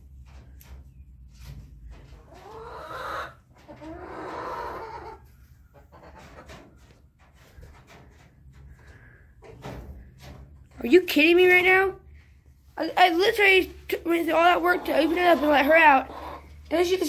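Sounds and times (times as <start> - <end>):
chicken calling: 2.2 - 6.5, 14.5 - 16.6.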